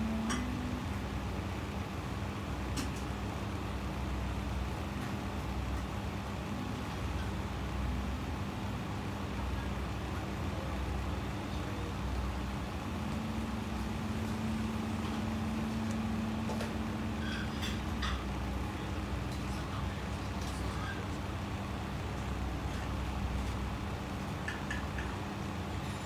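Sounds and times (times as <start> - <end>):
faint steady tone: 0.0 - 1.6, 6.1 - 22.6
low background hum and rumble: 0.0 - 26.0.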